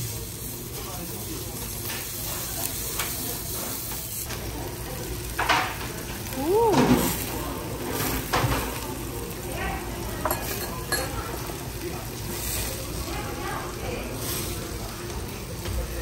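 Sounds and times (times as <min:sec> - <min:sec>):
meat sizzling on a grill: 0:00.0 - 0:16.0
person humming: 0:06.4 - 0:07.1.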